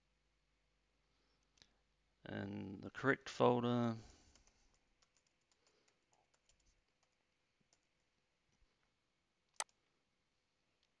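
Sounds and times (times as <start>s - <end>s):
keyboard typing: 4.2s - 8.0s
mouse click: 9.5s - 9.8s.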